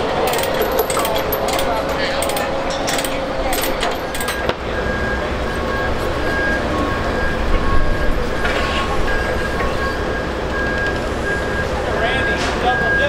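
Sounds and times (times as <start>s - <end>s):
diesel engine rumbling: 0.0s - 13.0s
metal chain clinking: 0.2s - 4.5s
electronic warning beeps: 3.0s - 13.0s.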